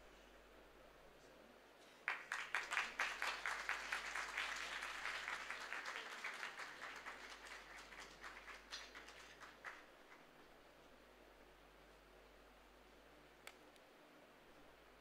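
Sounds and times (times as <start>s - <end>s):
audience applauding: 2.1s - 10.2s.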